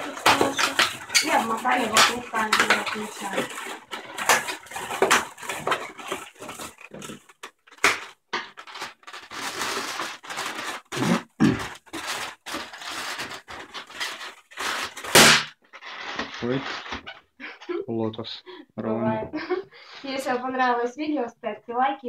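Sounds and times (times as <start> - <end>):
balloons squeaking and rubbing: 0.0 - 17.4.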